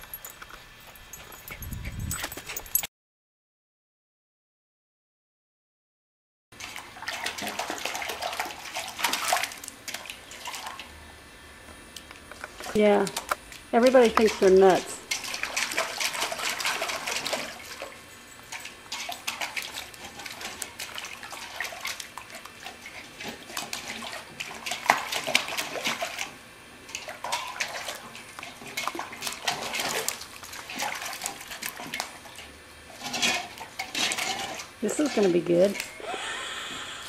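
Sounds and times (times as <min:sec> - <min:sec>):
puppy splashing water in bowl: 0:06.6 - 0:11.0, 0:12.6 - 0:36.0.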